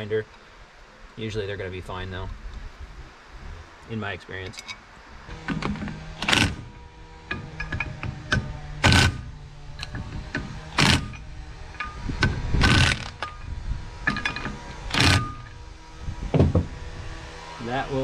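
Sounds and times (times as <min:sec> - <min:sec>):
impact driver hammering bolts: 0:05.3 - 0:15.6.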